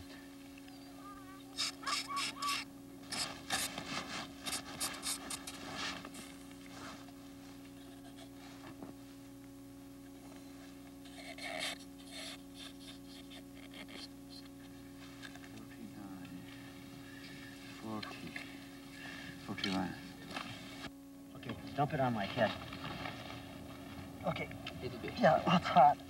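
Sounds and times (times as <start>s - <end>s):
hand tool scraping snow: 3.1s - 7.0s.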